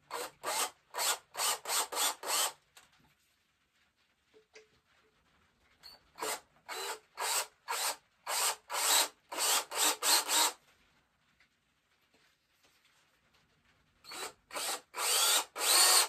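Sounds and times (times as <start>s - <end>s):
cordless drill grinding into horn: 0.1s - 2.6s, 6.2s - 10.6s, 14.1s - 16.0s.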